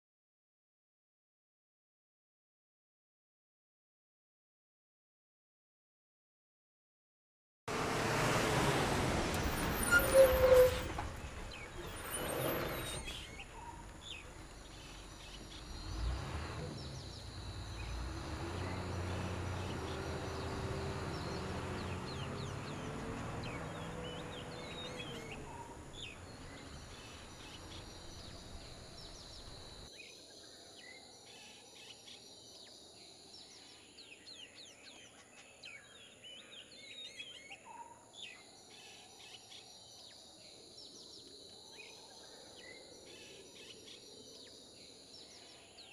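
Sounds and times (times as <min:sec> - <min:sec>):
bus engine running: 0:07.7 - 0:29.9
birds chirping: 0:09.3 - 0:45.9.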